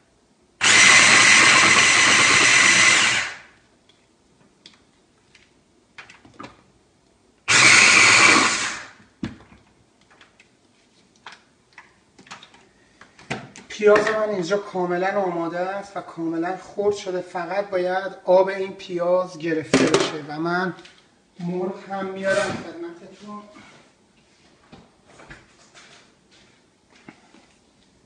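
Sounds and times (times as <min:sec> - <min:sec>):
electric food chopper whirring: 0:00.6 - 0:03.5, 0:07.5 - 0:09.0.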